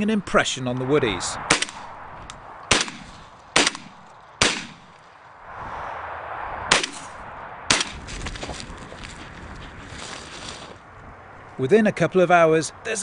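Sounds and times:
shotgun shots with echo: 0:01.5 - 0:01.9, 0:02.7 - 0:04.9, 0:06.7 - 0:08.0.

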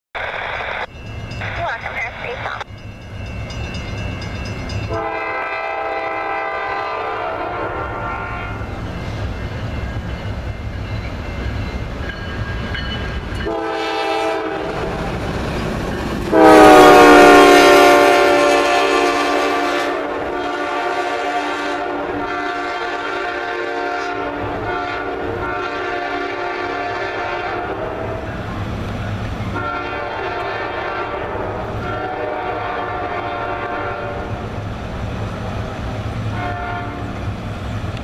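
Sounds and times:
train wheels rumbling on rails: 0:00.8 - 0:38.0
locomotive air horn blasts: 0:04.9 - 0:08.7, 0:13.4 - 0:15.0, 0:16.3 - 0:28.4, 0:29.5 - 0:34.4, 0:36.3 - 0:37.2.

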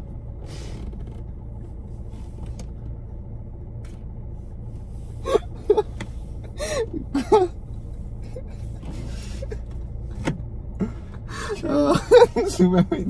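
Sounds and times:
car cabin hum: 0:00.0 - 0:13.0
man stifling laughter: 0:05.2 - 0:07.6, 0:10.8 - 0:13.0.

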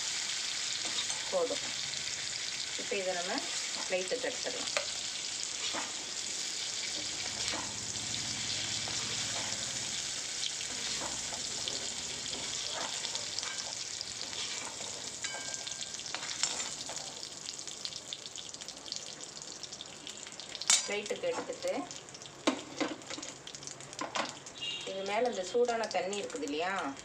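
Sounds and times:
paneer sizzling in hot oil: 0:00.0 - 0:27.0
ladle scraping and clinking on pan: 0:10.8 - 0:17.1.

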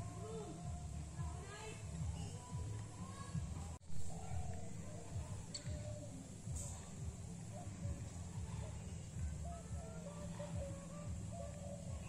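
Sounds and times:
birds whistling: 0:08.8 - 0:12.0.

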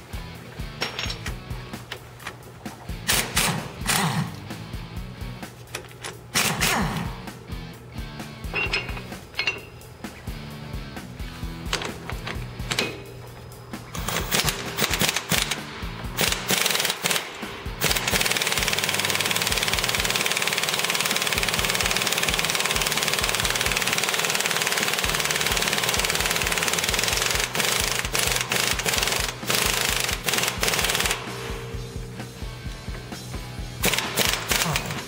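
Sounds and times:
impact wrench hammering: 0:00.7 - 0:04.5, 0:05.7 - 0:07.4, 0:08.5 - 0:10.2, 0:11.6 - 0:13.2, 0:13.9 - 0:32.3, 0:33.8 - 0:35.0.

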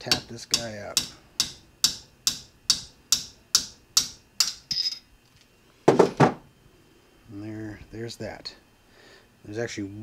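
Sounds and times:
hammer tapping metal: 0:00.0 - 0:05.0
metallic ring: 0:04.4 - 0:05.1.

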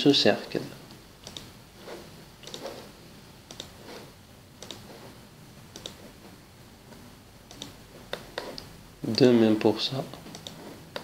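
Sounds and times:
computer mouse button clicking: 0:04.6 - 0:04.8, 0:05.7 - 0:06.0.

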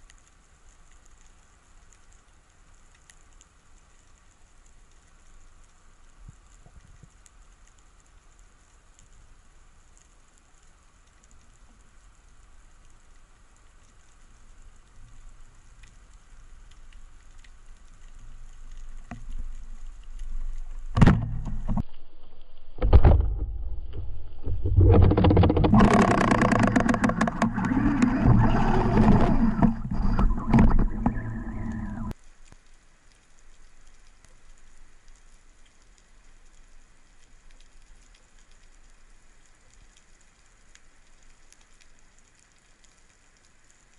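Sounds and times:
rumbling and rapid clicking: 0:18.7 - 0:21.9, 0:22.8 - 0:32.2.

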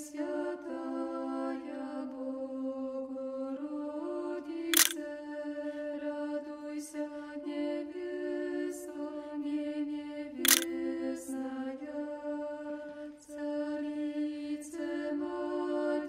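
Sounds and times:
choir singing chant: 0:00.0 - 0:16.0
sharp click: 0:04.8 - 0:05.0, 0:10.5 - 0:10.7.

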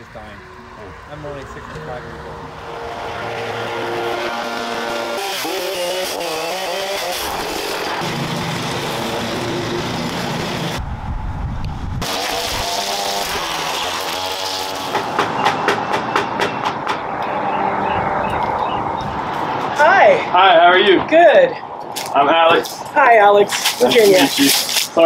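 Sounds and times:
mechanical work noise: 0:01.5 - 0:10.8, 0:12.0 - 0:19.7.

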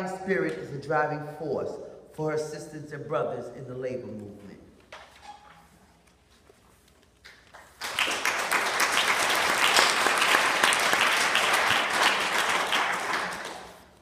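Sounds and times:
audience applauding: 0:07.5 - 0:14.0.

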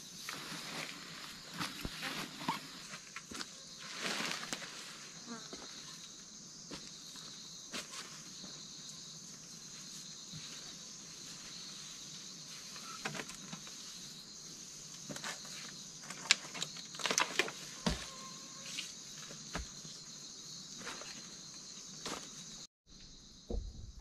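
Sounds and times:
insects chirring: 0:00.0 - 0:24.0
dry leaves rustling: 0:03.8 - 0:05.1.

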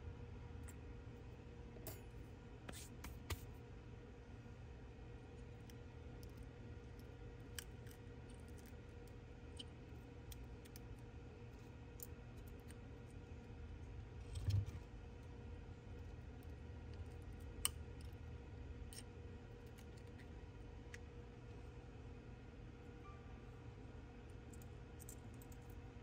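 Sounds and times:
faint hum: 0:00.0 - 0:26.0.

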